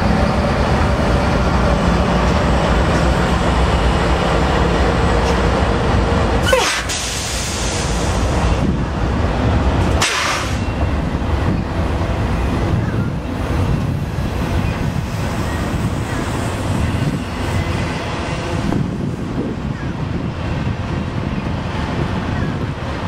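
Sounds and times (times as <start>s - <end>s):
freight train rumbling past: 0.0s - 23.0s.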